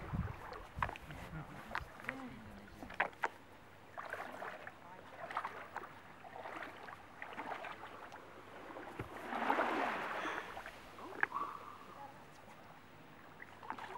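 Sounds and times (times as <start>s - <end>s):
seawater lapping on beach: 0.0s - 13.9s.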